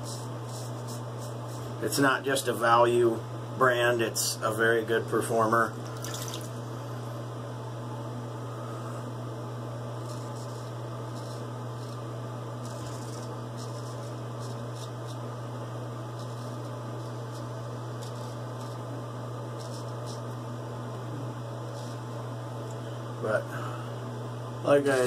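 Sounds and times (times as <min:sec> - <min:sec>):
razor scraping stubble: 0:00.0 - 0:01.8, 0:10.0 - 0:15.3, 0:16.1 - 0:20.4, 0:21.6 - 0:22.2
low electrical hum: 0:00.0 - 0:25.0.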